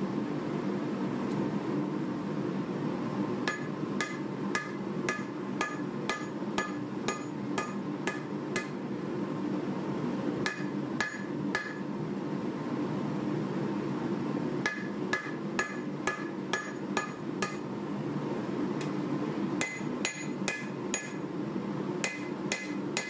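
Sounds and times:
hammer ringing on anvil: 3.5s - 8.8s, 10.5s - 11.9s, 14.6s - 17.6s, 19.6s - 21.2s, 22.0s - 23.0s.

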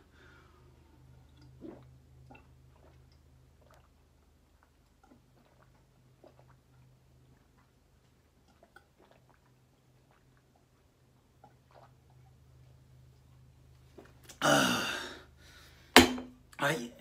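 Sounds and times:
low steady hum: 0.0s - 17.0s
person gulping and swallowing: 1.1s - 12.4s, 13.9s - 15.0s.

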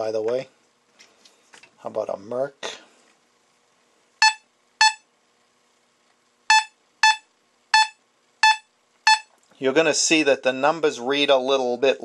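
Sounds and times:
metal detector beeps: 4.2s - 5.0s, 6.5s - 9.3s.

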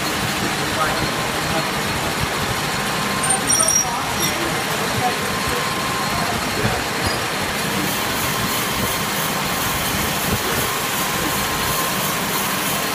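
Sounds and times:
lathe running: 1.2s - 12.3s
faint high steady tone: 3.2s - 4.6s.

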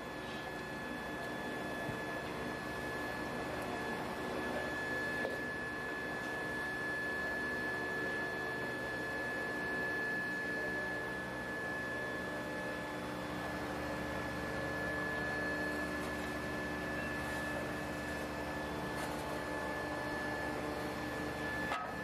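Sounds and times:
machine hum with high whine: 0.0s - 22.0s.

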